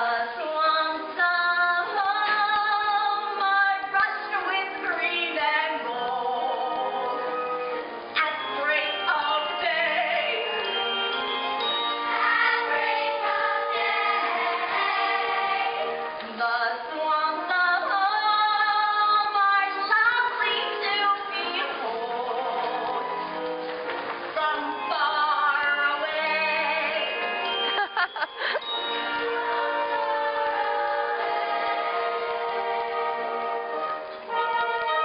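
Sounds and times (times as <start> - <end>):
pit orchestra playing: 6.8 - 16.2, 23.0 - 35.0.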